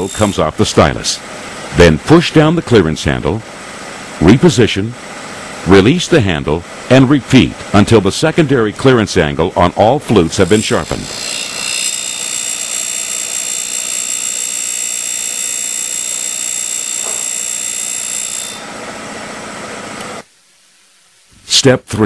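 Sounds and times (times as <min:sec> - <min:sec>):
machine hum: 0:00.0 - 0:21.2
grinding wheel whining: 0:10.4 - 0:18.8.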